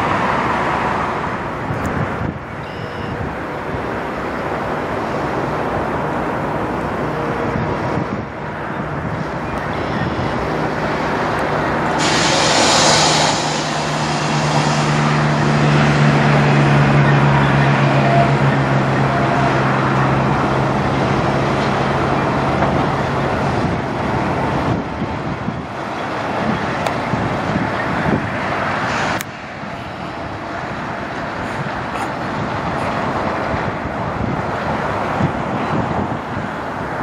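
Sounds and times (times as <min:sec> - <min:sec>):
truck diesel engine running: 0:03.3 - 0:28.1.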